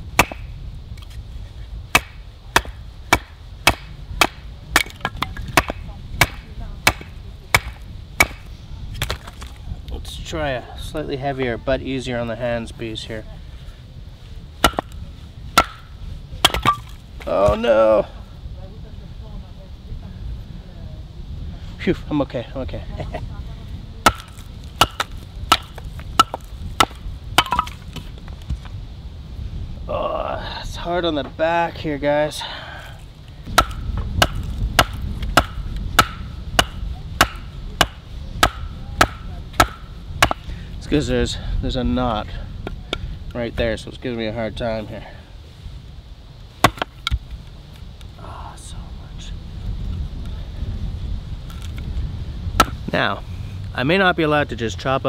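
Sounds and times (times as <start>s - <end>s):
wooden baton striking hatchet: 0.2s - 0.5s, 1.9s - 9.4s, 14.6s - 15.0s, 15.6s - 17.6s, 24.0s - 28.0s, 33.5s - 40.5s, 46.6s - 47.2s.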